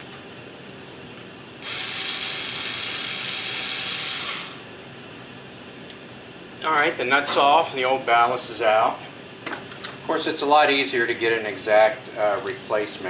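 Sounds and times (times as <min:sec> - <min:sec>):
cordless power driver whirring: 0:01.6 - 0:04.6.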